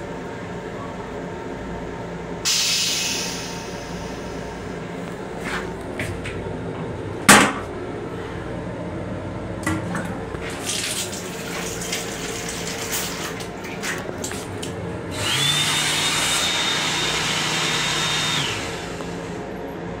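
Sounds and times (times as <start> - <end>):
faucet running into sink: 9.7 - 14.8
whirring rush with whine: 14.2 - 20.0.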